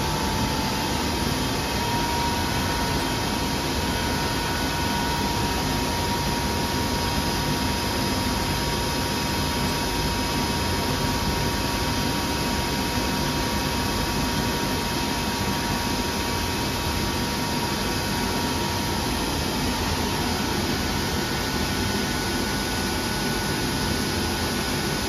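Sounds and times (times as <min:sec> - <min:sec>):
machine whirring: 0:00.0 - 0:07.4
high-pitched machine whine: 0:00.0 - 0:25.0.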